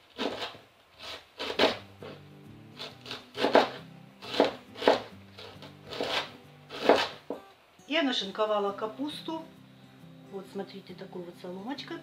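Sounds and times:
knife slicing cabbage on board: 0.0 - 2.2, 2.8 - 7.4
quiet background music: 0.2 - 12.0.

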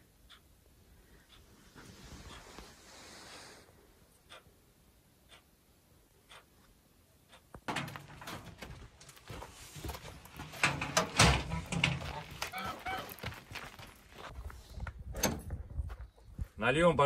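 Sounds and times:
short animal calls: 12.2 - 13.2.

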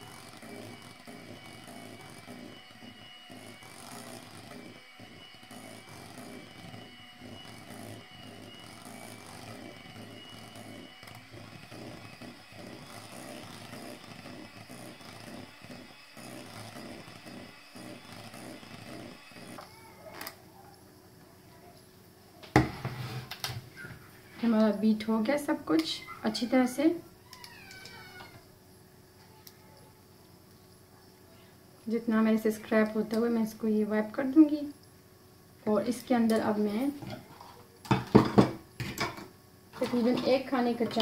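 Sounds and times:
electric hand mixer whirring: 0.0 - 20.4, 35.7 - 41.0.

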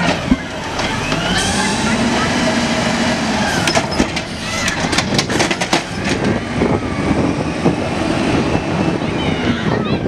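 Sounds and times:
trash cart rattling and clattering: 0.0 - 7.8
truck engine running: 0.0 - 10.0.

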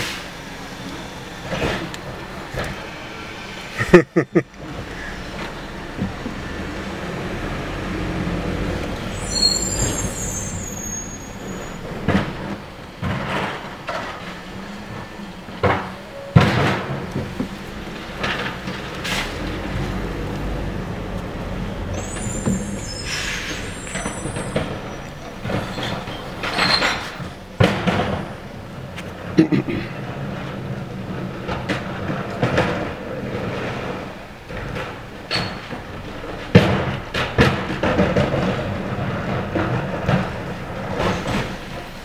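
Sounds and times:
truck brakes squealing: 0.0 - 17.0, 21.5 - 28.6, 35.3 - 35.8, 40.7 - 42.0
garbage truck engine running: 0.0 - 42.0
carts knocking and banging: 3.8 - 42.0.

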